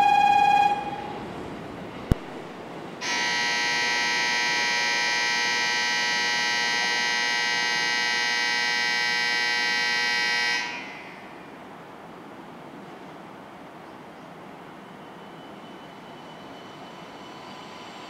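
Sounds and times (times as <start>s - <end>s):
electronic buzzer ringing: 3.0s - 11.1s.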